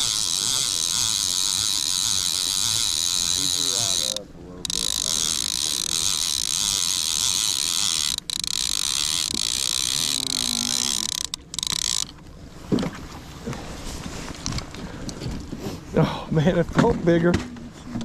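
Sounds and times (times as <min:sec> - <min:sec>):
fishing reel gears whirring: 0:00.0 - 0:12.2.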